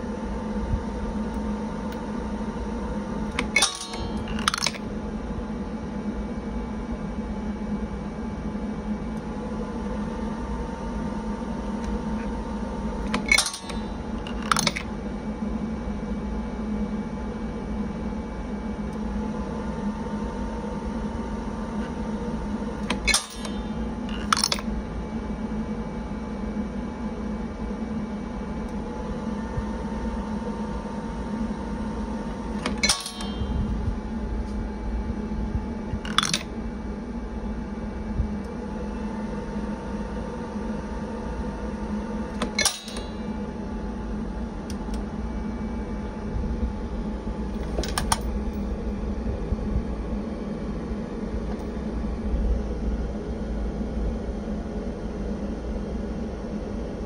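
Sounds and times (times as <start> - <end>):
fan hum: 0.0 - 57.0
metal case dropping clack: 32.6 - 33.6.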